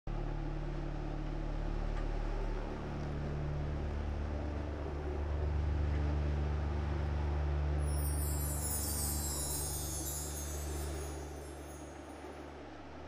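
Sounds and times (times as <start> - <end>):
low drone of deep tones: 0.1 - 13.0
soft hiss: 6.0 - 13.0.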